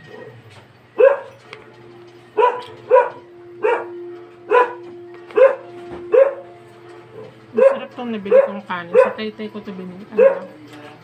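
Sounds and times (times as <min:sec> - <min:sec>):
dog barking: 0:00.0 - 0:00.4, 0:01.0 - 0:01.4, 0:02.4 - 0:09.3, 0:10.2 - 0:10.6.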